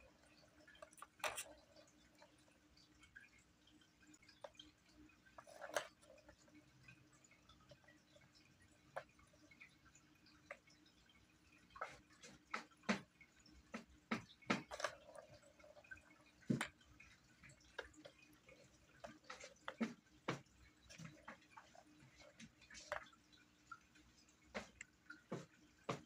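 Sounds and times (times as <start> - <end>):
plastic balls clacking in tracks: 12.3 - 16.8.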